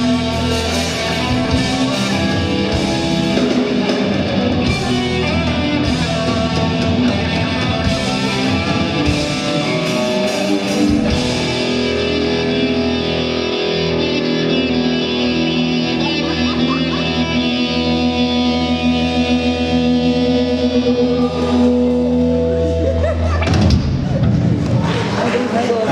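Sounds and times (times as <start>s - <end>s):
drums and cymbals: 0.0s - 12.3s
bass guitar: 0.0s - 25.2s
distorted electric guitars: 0.0s - 25.2s.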